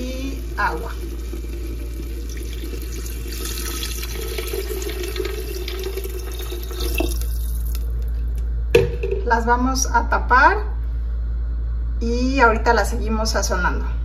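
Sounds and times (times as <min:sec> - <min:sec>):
water pouring into a clay pot: 0:00.0 - 0:08.1.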